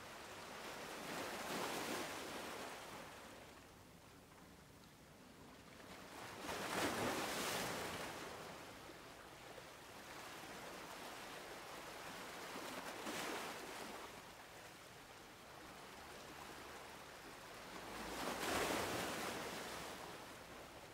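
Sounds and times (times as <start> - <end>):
small waves breaking on shore: 0.0 - 3.6, 5.5 - 20.9.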